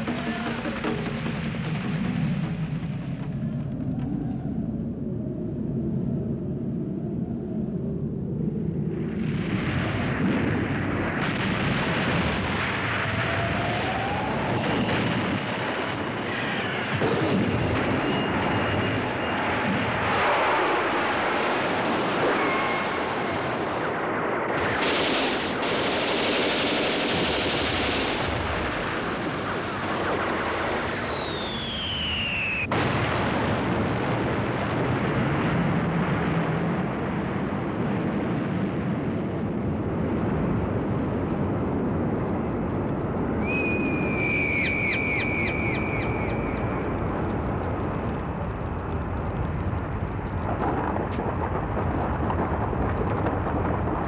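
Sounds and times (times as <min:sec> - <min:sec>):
explosions: 0:00.0 - 0:04.0, 0:08.9 - 0:54.0
falling bomb whistle: 0:17.8 - 0:19.6, 0:22.3 - 0:23.4, 0:30.5 - 0:32.7, 0:43.4 - 0:47.0
gunfire: 0:24.5 - 0:31.9.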